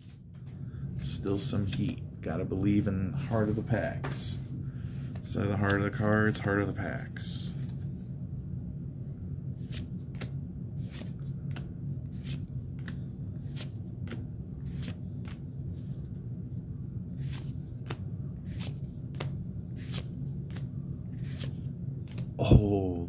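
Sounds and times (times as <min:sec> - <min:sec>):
steady low hum: 0:00.0 - 0:23.0
trading cards swishing: 0:09.6 - 0:16.2, 0:17.2 - 0:22.4.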